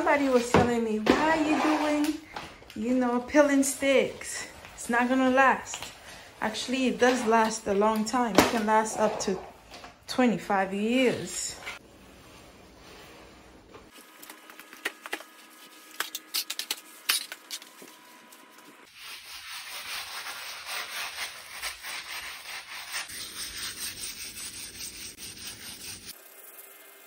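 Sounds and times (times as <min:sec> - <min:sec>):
scrubbing a vinyl floor: 0:00.0 - 0:02.3, 0:18.8 - 0:26.8.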